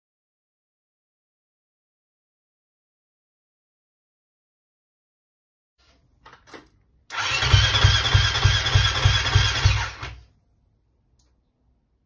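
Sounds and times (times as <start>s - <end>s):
engine starter cranking: 7.1s - 10.2s.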